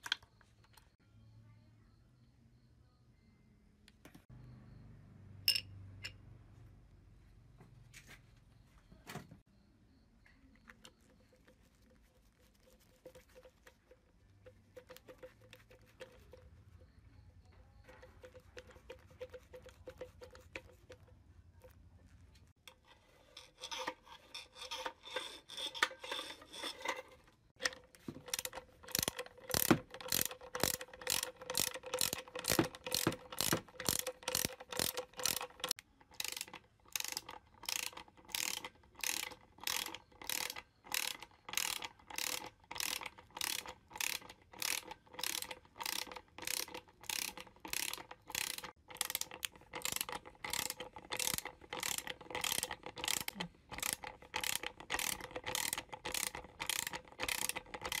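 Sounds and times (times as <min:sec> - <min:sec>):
ratchet wrench clicking: 0:27.6 - 0:58.0.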